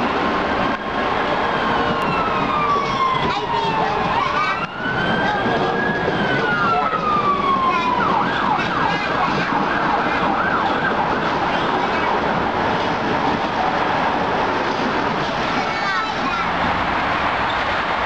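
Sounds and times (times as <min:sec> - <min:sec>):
subway train running: 0:00.0 - 0:18.0
emergency vehicle siren: 0:00.7 - 0:14.5.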